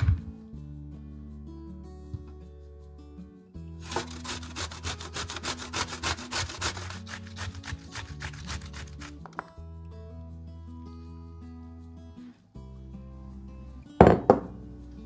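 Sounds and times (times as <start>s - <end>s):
zucchini grated on box grater: 3.8s - 9.2s.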